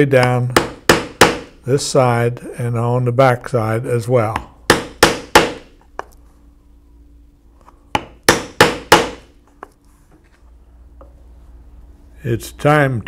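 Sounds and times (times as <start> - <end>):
mallet striking punch through leather: 0.2 - 1.5, 4.7 - 5.7, 8.0 - 9.3.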